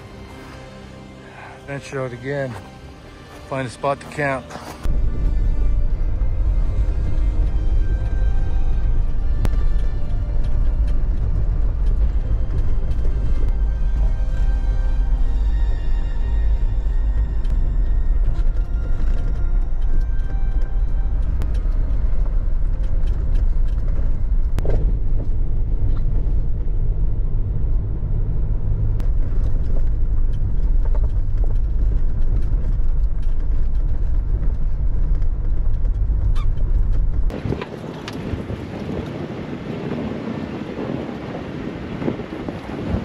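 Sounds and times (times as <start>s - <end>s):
car engine and tyres rumbling: 0.0s - 43.0s
wind blowing on microphone: 36.1s - 43.0s.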